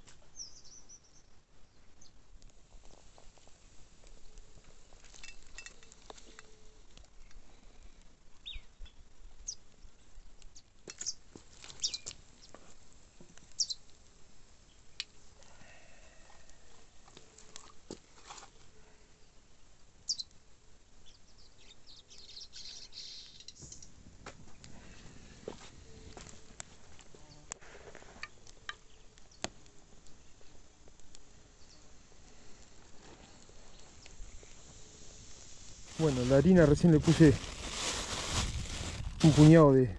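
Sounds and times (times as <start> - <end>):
faint outdoor background: 0.0 - 39.9
faint crackles: 2.3 - 20.4, 22.1 - 39.9
birds chirping: 8.4 - 12.6, 13.5 - 13.8, 21.0 - 24.0.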